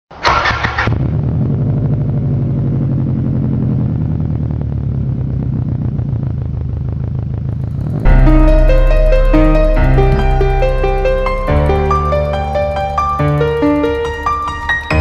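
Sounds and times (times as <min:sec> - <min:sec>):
vehicle engine idling: 0:00.2 - 0:15.0
piano music: 0:08.0 - 0:15.0.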